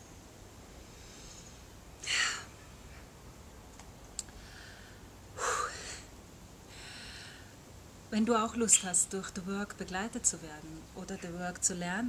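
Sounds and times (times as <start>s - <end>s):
woman breathing deeply: 0.8s - 2.5s, 4.3s - 6.1s, 6.7s - 7.6s
woman sighing: 5.4s - 6.0s.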